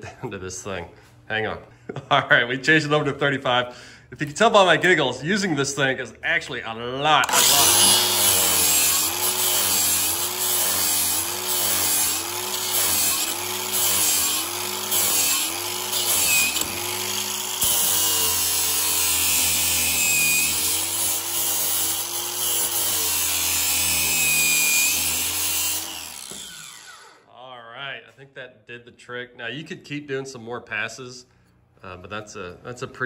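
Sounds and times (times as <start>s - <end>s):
grinder grinding steel blade: 7.2s - 27.3s.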